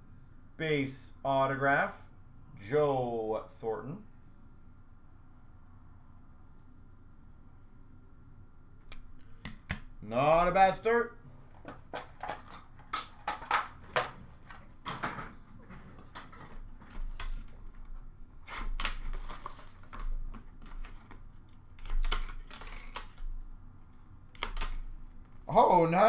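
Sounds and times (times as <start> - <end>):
packaging rustling and crinkling: 11.4 - 25.5.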